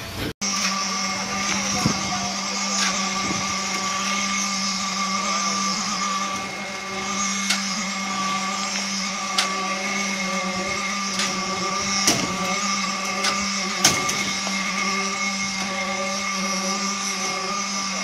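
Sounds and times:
concrete pump motor hum: 0.0 - 18.0.

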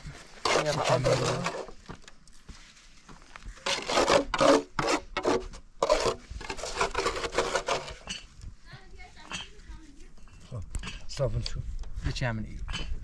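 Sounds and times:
hand tool scraping brick: 0.0 - 2.0, 3.2 - 8.4.

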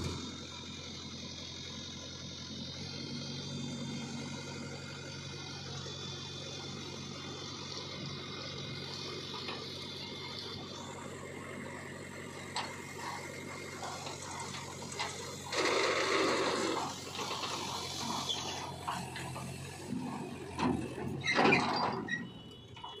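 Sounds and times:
tractor engine running: 0.0 - 23.0.

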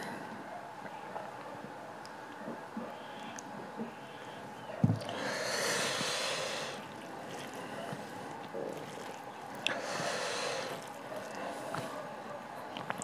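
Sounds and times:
rice worked by hand: 4.8 - 13.0
man breathing hard through mouth: 5.1 - 6.9, 9.7 - 10.9.

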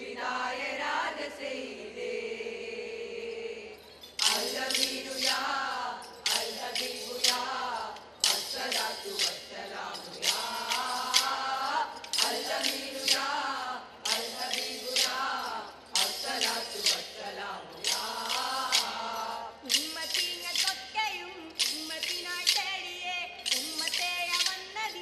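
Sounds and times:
group singing: 0.0 - 25.0
wooden sticks clacking: 6.2 - 13.4.

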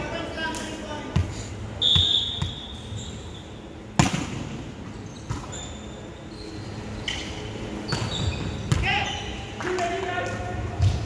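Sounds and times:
sneaker squeaks on court: 4.9 - 9.5.

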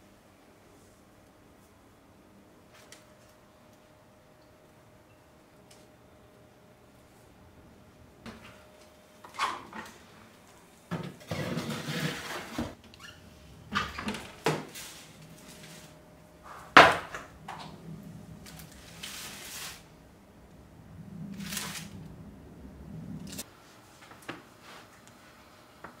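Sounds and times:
scraping rustles: 11.1 - 12.8, 13.8 - 16.8, 17.4 - 19.9
metal baking tray clattering: 11.2 - 12.7.

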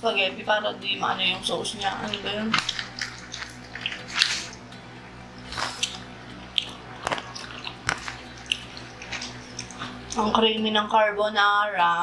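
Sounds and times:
wet chewing and mouth smacks: 1.8 - 4.8, 5.4 - 10.2.

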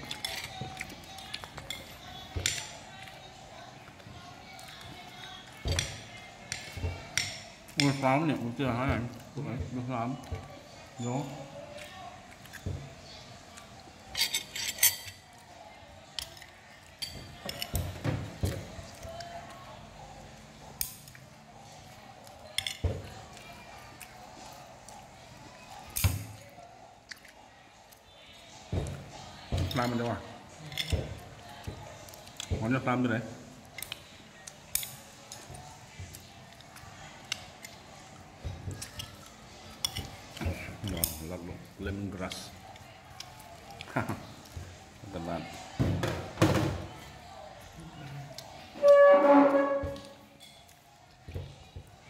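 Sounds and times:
cutlery and plates clinking: 0.0 - 3.2, 4.5 - 15.5, 16.1 - 19.3, 22.0 - 23.4, 25.8 - 26.5, 28.7 - 32.9, 33.7 - 44.6, 48.8 - 51.5
murmur of voices: 0.0 - 52.0.

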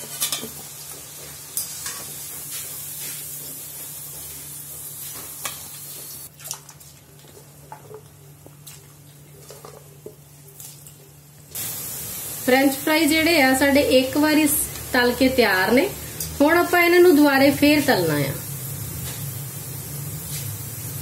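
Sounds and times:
fries sizzling in oil: 0.0 - 6.3, 11.1 - 21.0.

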